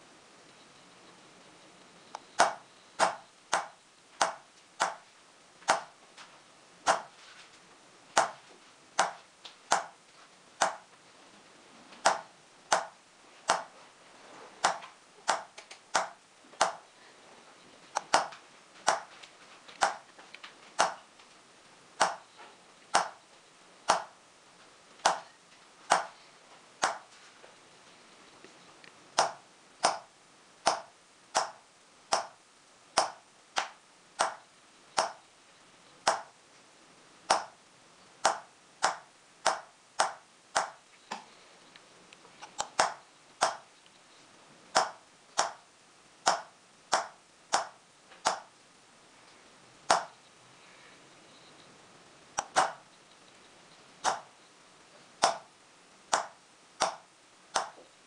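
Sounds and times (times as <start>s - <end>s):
hammer tapping engraving tool: 2.2s - 5.1s, 5.7s - 6.0s, 6.9s - 7.2s, 8.2s - 8.4s, 9.0s - 10.0s, 10.6s - 10.9s, 12.0s - 13.7s, 14.6s - 16.9s, 18.0s - 19.1s, 19.8s - 20.1s, 20.8s - 21.1s, 22.0s - 23.2s, 23.9s - 24.2s, 25.0s - 26.2s, 26.8s - 27.1s, 29.2s - 32.4s, 33.0s - 35.2s, 36.0s - 36.4s, 37.3s - 37.6s, 38.2s - 41.2s, 42.6s - 43.7s, 44.8s - 45.7s, 46.3s - 48.5s, 49.9s - 50.2s, 52.4s - 52.8s, 54.0s - 54.3s, 55.2s - 55.5s, 56.1s - 57.9s.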